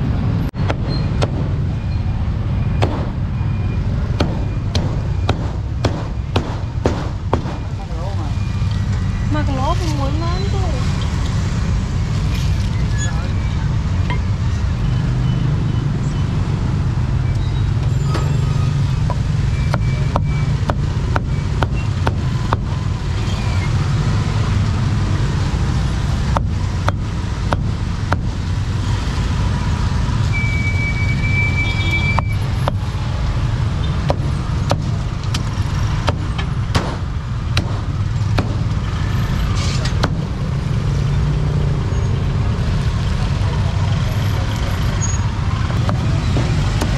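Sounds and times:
low rumble of street traffic: 0:00.0 - 0:46.9
sharp knocks: 0:00.6 - 0:01.6, 0:02.8 - 0:03.2, 0:04.2 - 0:07.8, 0:19.1 - 0:22.8, 0:36.0 - 0:38.8.

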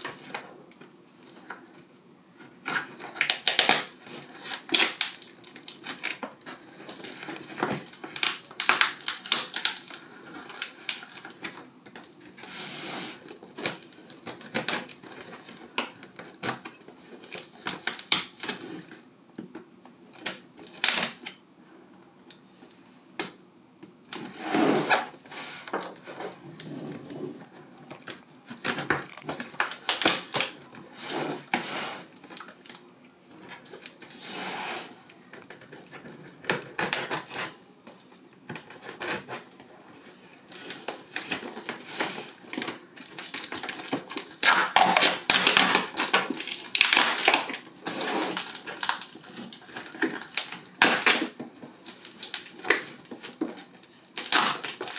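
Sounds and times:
knife slitting tape and cardboard: 0:40.6 - 0:52.9, 0:54.2 - 0:54.9.

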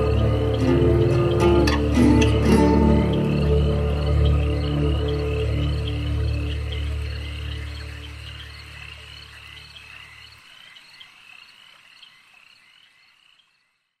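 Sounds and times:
deep music drone: 0:00.0 - 0:09.2.

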